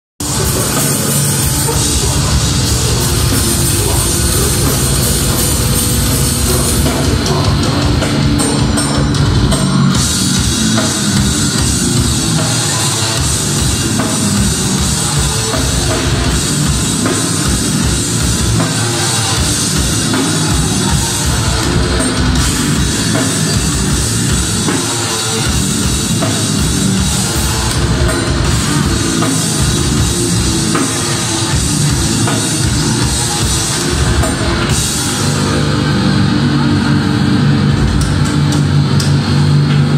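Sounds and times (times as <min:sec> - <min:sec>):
heavy metal band playing live: 0:00.0 - 0:39.9.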